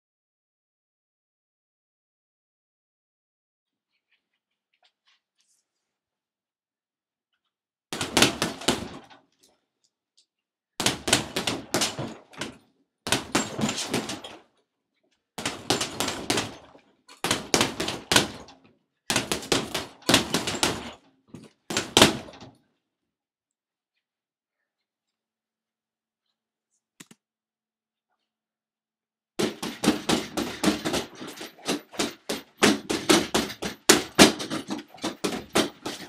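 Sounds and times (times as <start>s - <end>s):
bursts of rapid knocking: 17.2s - 18.5s, 19.1s - 21.0s.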